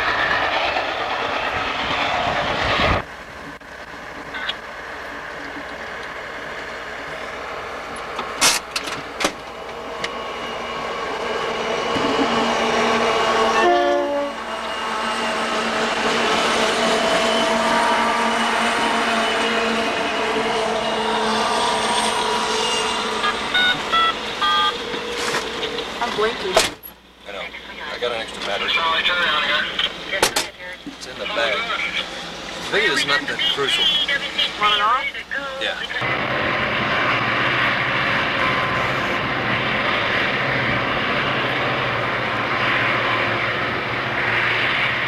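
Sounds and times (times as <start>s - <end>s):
diesel freight train passing: 0.0s - 45.0s
brief pitched tone: 22.5s - 24.8s.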